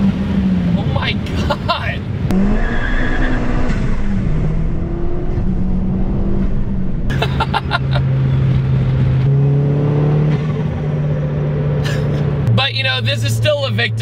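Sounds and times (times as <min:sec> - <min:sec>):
car engine at highway speed: 0:00.0 - 0:14.0
person laughing: 0:01.3 - 0:02.0, 0:07.1 - 0:08.1.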